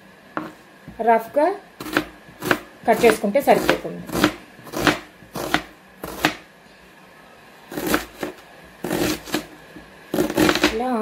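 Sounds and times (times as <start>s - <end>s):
knife chopping on cutting board: 0.4s - 0.6s, 1.8s - 6.4s, 7.7s - 10.8s.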